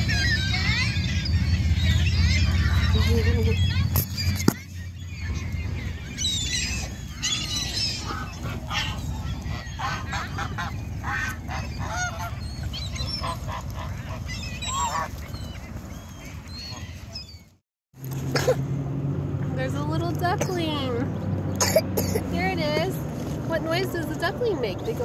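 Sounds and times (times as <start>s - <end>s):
gulls and geese calling: 0.0s - 17.5s.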